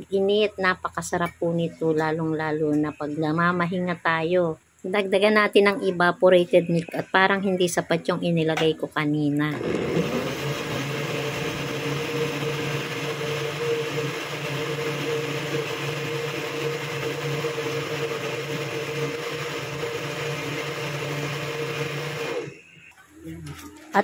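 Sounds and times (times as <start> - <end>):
electric blender whirring: 9.5 - 22.9.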